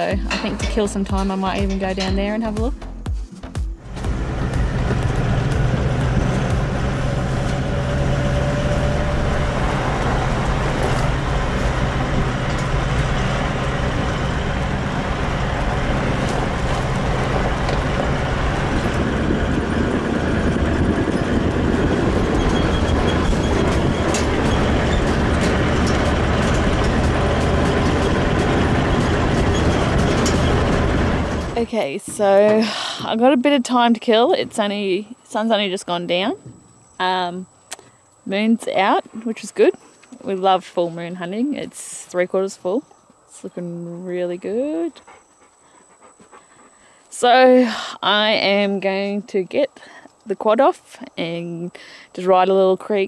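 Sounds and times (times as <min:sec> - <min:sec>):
vehicle engine drone: 0:00.0 - 0:03.1, 0:03.7 - 0:50.4
road noise: 0:00.0 - 0:53.0
wind noise: 0:03.9 - 0:33.2.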